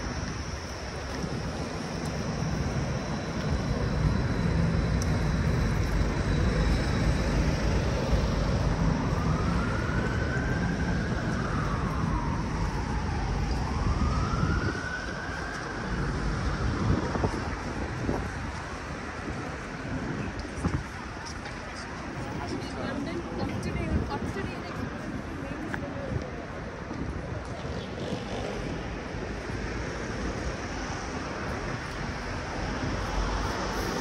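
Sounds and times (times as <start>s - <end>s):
emergency siren wailing: 0.0s - 20.7s
city street traffic rumble: 0.0s - 34.0s.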